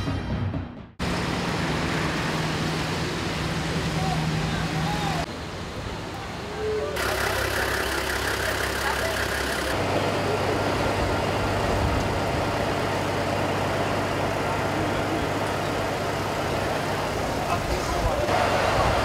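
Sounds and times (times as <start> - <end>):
heavy vehicle engine idling: 7.0 - 19.0.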